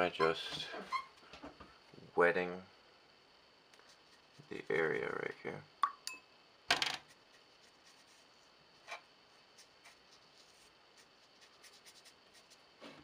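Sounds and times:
brush swishing on paper: 0:03.8 - 0:04.8, 0:07.0 - 0:12.9.

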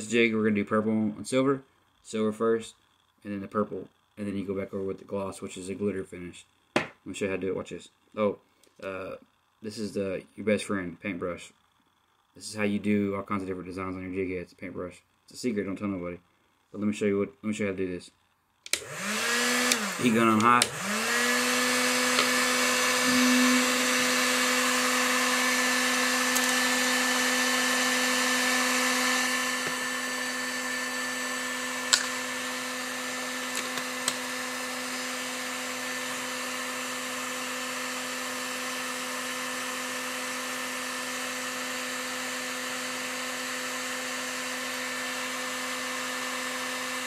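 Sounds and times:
heat gun fan humming: 0:17.8 - 0:47.0.

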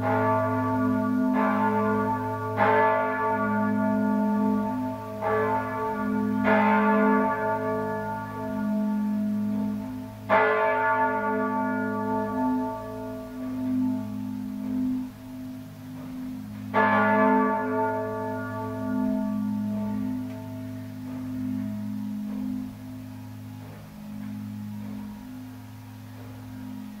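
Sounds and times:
church bells pealing: 0:00.0 - 0:27.0
deep hum of large bells: 0:00.0 - 0:27.0.

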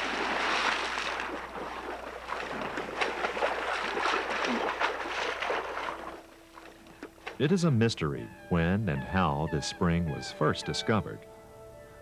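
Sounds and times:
person splashing through water: 0:00.0 - 0:07.4.

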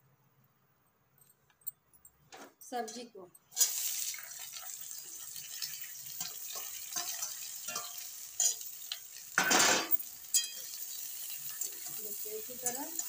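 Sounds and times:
oil sizzling: 0:03.5 - 0:13.0
metal spatula scraping pan: 0:05.5 - 0:13.0.

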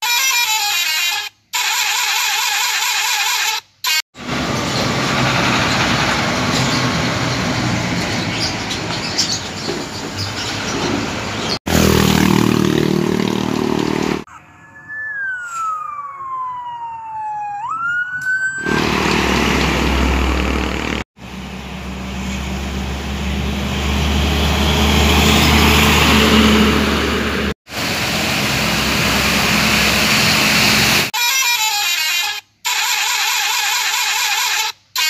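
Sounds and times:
heavy trucks passing: 0:04.2 - 0:14.3, 0:18.6 - 0:31.1
sliding whistle-like tone: 0:14.3 - 0:16.6.

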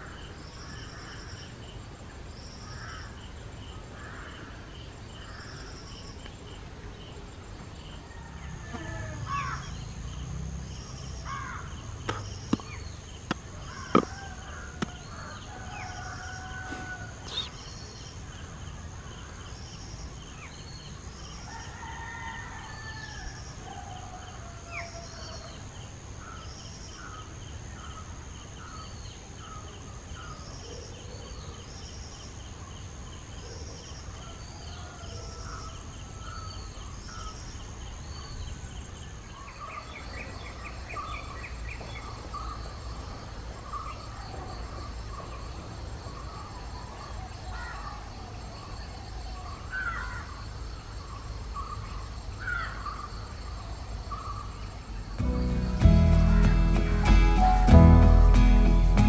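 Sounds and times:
high insect drone: 0:00.0 - 0:30.6
birds whistling and chirping: 0:17.2 - 0:17.9.

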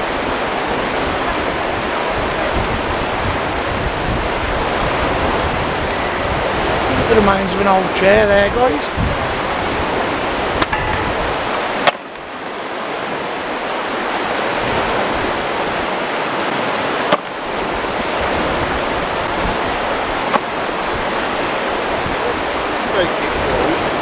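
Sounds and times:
river water rushing: 0:00.0 - 0:24.0.

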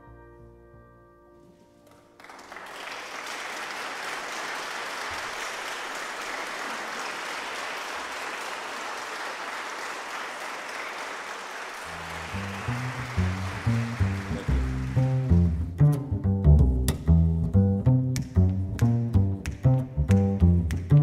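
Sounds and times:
audience applauding: 0:01.9 - 0:15.6.

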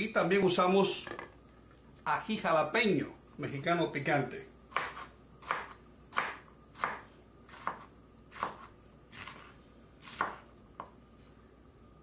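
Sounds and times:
knife slicing pepper: 0:04.7 - 0:11.0.

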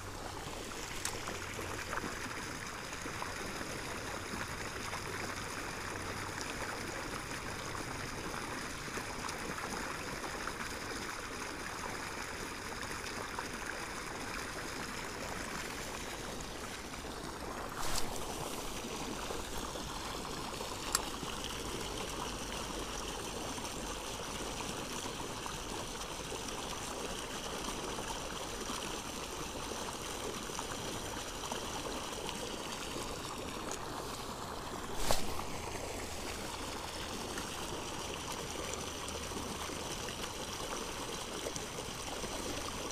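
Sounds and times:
water jet splashing: 0:15.4 - 0:21.4.

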